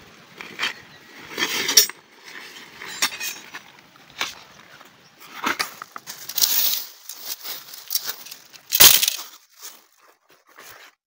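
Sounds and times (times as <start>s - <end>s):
dry leaves crackling underfoot: 0.4s - 10.9s
sharp crunch: 5.2s - 10.0s
tent fabric rustling: 5.2s - 11.0s.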